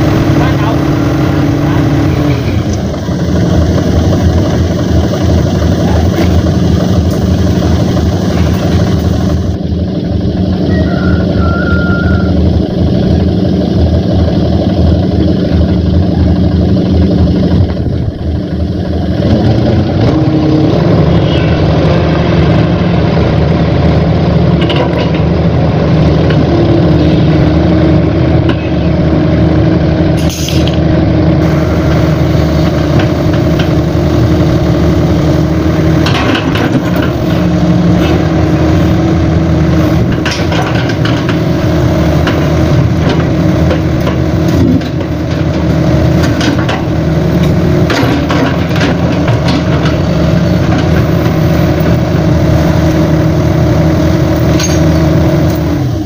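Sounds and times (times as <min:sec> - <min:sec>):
excavator diesel engine: 0:00.0 - 0:56.0
short hiss: 0:30.2 - 0:30.7.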